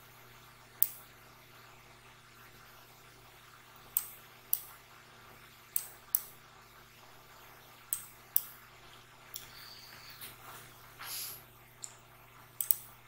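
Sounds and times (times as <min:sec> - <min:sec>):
faint steady hum: 0:00.0 - 0:13.0
computer mouse clicks: 0:05.7 - 0:06.3, 0:12.6 - 0:12.9.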